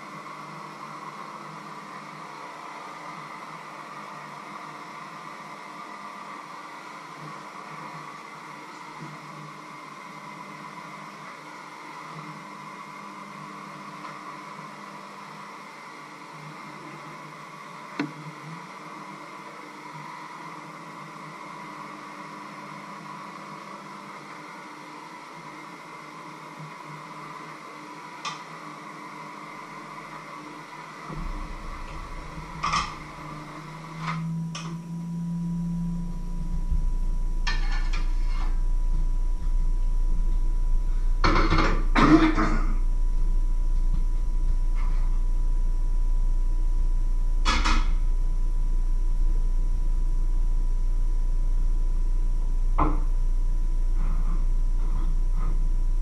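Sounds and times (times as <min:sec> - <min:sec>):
background hum and hiss: 0:00.0 - 0:56.0
low rumble: 0:31.1 - 0:42.0, 0:42.6 - 0:47.4, 0:48.0 - 0:56.0.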